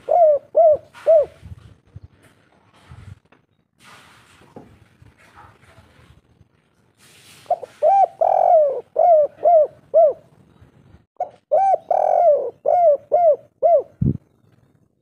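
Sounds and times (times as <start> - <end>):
dove cooing: 0.0 - 1.5, 7.5 - 10.4, 11.2 - 14.3.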